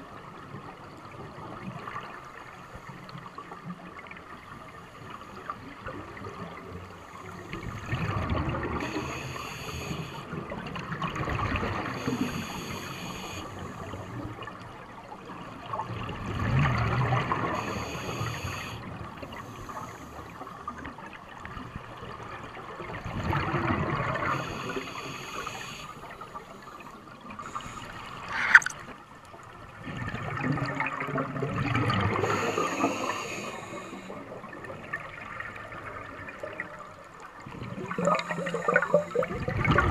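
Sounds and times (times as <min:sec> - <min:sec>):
diver breathing through regulator: 0:08.8 - 0:10.3, 0:12.0 - 0:14.2, 0:17.4 - 0:20.4, 0:24.2 - 0:26.2, 0:27.4 - 0:28.8, 0:32.1 - 0:34.4
bubbles gurgling: 0:22.8 - 0:24.3, 0:29.8 - 0:33.1, 0:37.4 - 0:39.9.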